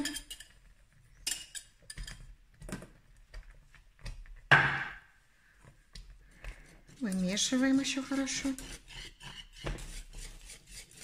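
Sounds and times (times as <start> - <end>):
glass and metal clinking: 1.2 - 2.2.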